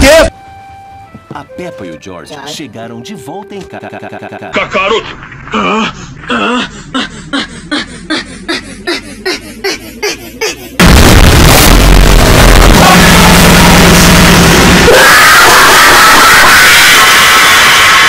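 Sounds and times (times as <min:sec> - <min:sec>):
stuttering looped voice: 0:03.6 - 0:10.9, 0:12.4 - 0:14.0
loud distorted blast: 0:10.8 - 0:18.0.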